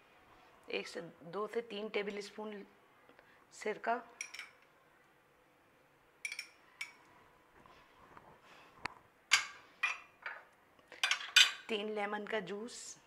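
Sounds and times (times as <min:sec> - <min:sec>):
kitchenware clinking on glass bowl: 0:04.2 - 0:04.6, 0:06.2 - 0:07.0.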